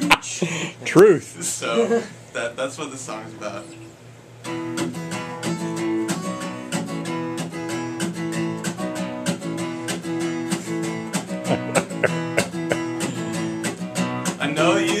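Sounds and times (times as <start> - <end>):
acoustic guitar strumming chords: 3.3 - 15.0.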